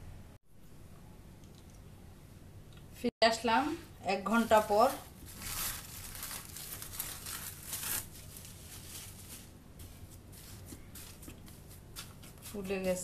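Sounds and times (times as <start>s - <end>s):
cling film crinkling and rustling: 4.5s - 12.4s.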